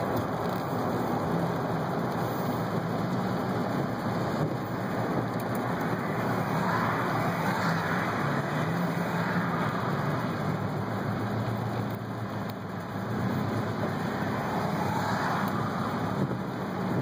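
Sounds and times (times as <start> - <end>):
low engine hum: 0.0 - 17.0
tyre hiss on wet road: 2.1 - 3.3, 14.1 - 16.1.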